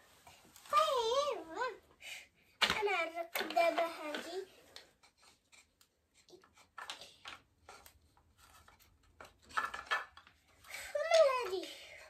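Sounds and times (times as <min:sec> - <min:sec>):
wooden track pieces knocking: 0:02.6 - 0:04.4, 0:06.6 - 0:11.6.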